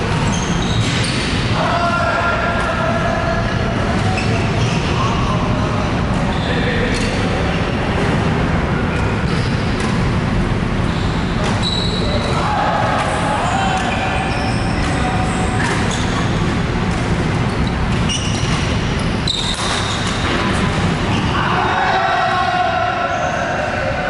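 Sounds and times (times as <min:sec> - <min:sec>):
sneakers squeaking on floor: 0:00.0 - 0:01.5, 0:03.4 - 0:08.2, 0:08.8 - 0:12.4, 0:13.4 - 0:21.5, 0:23.0 - 0:23.7
distant voices: 0:00.0 - 0:24.0
low hall rumble: 0:00.0 - 0:24.0
racket hitting shuttlecock: 0:09.2 - 0:10.2.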